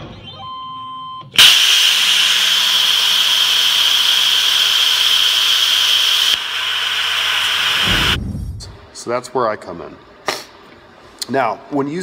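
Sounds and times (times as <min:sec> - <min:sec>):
plasma cutter hissing through metal: 0:01.4 - 0:08.2.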